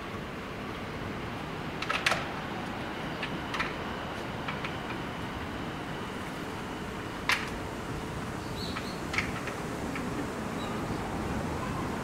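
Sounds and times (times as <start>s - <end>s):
outdoor background noise: 0.0s - 12.0s
sharp clicks and knocks: 8.7s - 10.1s.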